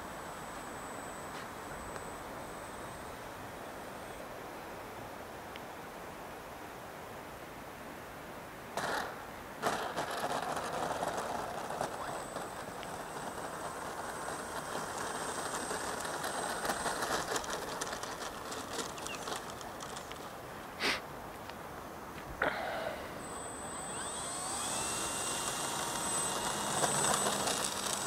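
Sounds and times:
thin high whine: 0.0s - 4.5s, 9.6s - 20.2s, 22.4s - 28.0s.

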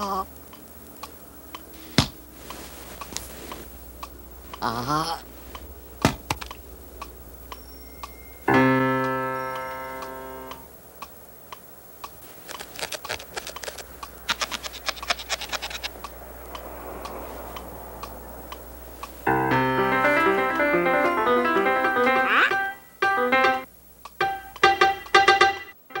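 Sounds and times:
light clicks and ticks: 0.4s - 1.7s, 6.3s - 8.2s, 9.0s - 19.2s.

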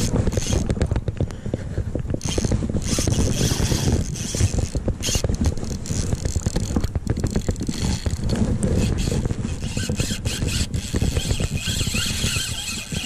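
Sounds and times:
fishing reel drag clicking: 0.0s - 0.7s, 2.2s - 13.0s
low wind rumble: 0.0s - 13.0s
microphone handling noise: 0.0s - 13.0s.

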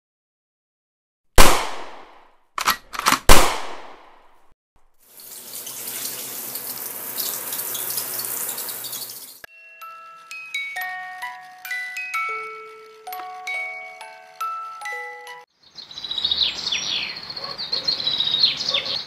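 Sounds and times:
water pouring and splashing: 5.0s - 9.5s.

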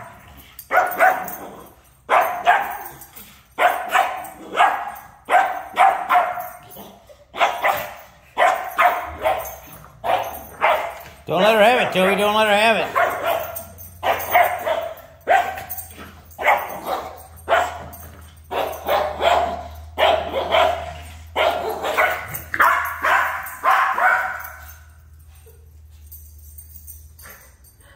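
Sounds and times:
small dog barking: 0.7s - 1.5s, 2.1s - 3.0s, 3.6s - 6.7s, 7.3s - 11.0s, 12.8s - 15.8s, 16.4s - 17.9s, 18.5s - 24.6s.

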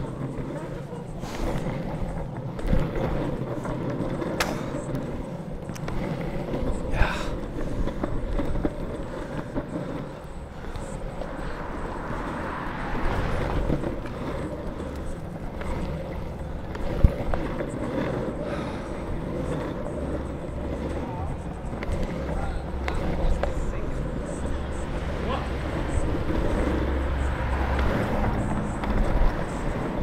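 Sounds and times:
longboard wheels rolling on asphalt: 0.0s - 30.0s.

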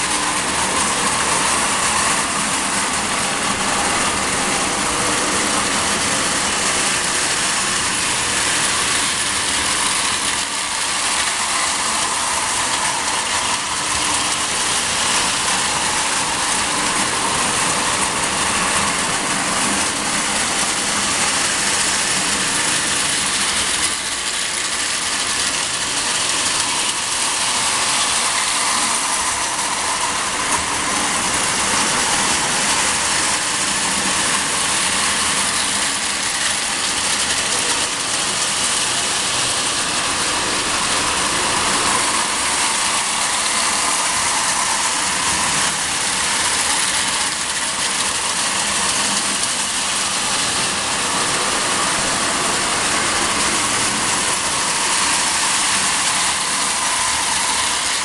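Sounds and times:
tin wheels rattling on rails: 0.0s - 58.0s
toy train motors whirring: 0.0s - 58.0s.

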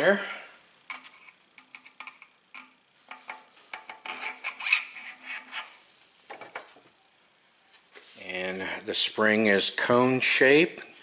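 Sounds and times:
metal rod scraping: 2.6s - 5.8s.

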